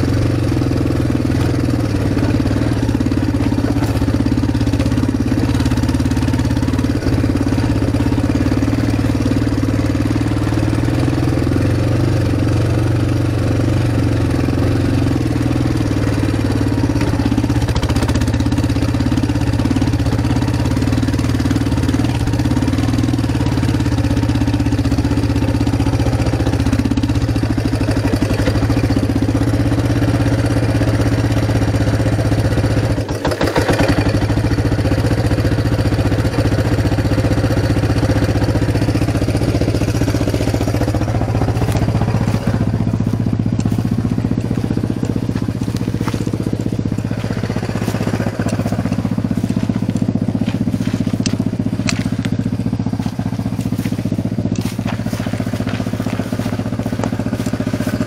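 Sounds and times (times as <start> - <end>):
quad engine running: 0.0 - 58.0
crackling clicks: 44.6 - 58.0.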